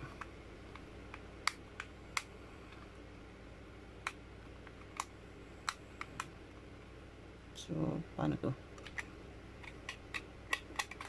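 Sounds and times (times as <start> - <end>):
sharp plastic clicks: 8.8 - 11.0.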